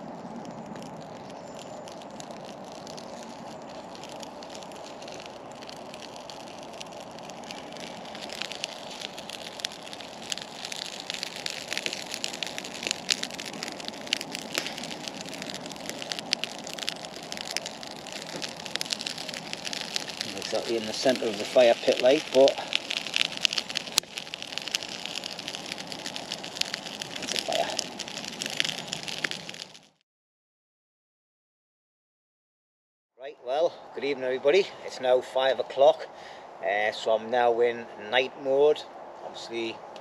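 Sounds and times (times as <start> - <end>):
fire crackling and popping: 0.0 - 30.0, 39.0 - 40.0.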